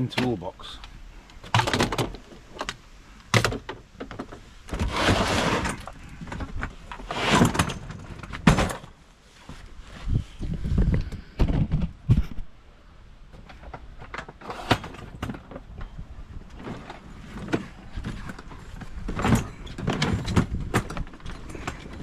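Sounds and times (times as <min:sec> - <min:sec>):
toolbox clicks and knocks: 0:17.4 - 0:22.0.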